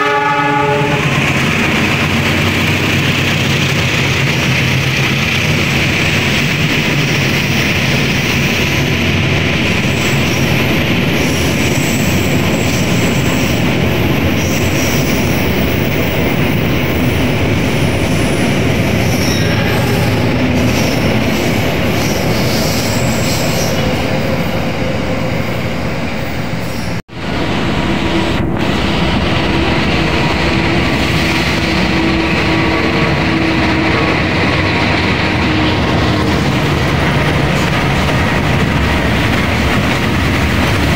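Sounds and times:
diesel locomotive engine hum: 0.0s - 40.9s
train wheels rolling on rails: 0.0s - 40.9s.

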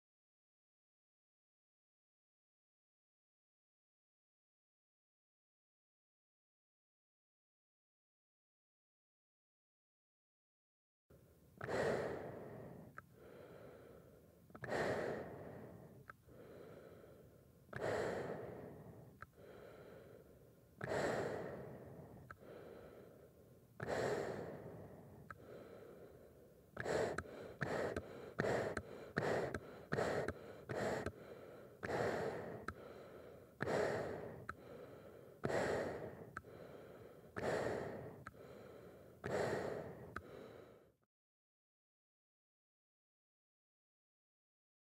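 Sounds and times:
heavy breathing through mask: 11.6s - 41.0s.

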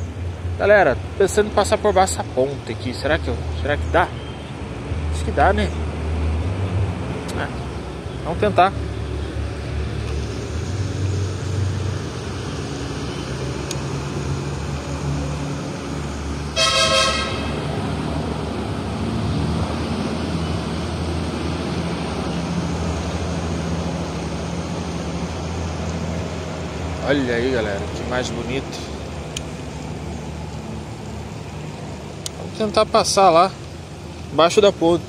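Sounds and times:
road traffic rumble: 0.0s - 35.0s
vehicle horn honking: 16.5s - 17.6s.

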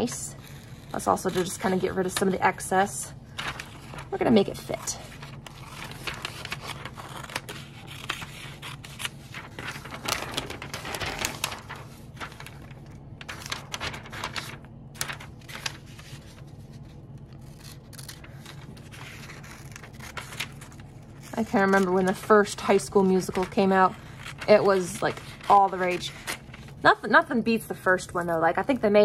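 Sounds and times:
paper rustling and crinkling: 0.0s - 27.0s
scissors snipping paper: 3.4s - 12.6s, 17.4s - 26.6s.

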